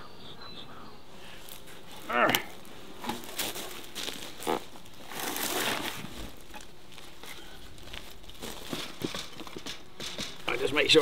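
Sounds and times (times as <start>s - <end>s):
footsteps crunching on bark mulch: 1.3s - 9.7s
scuffing rustle: 1.4s - 9.4s.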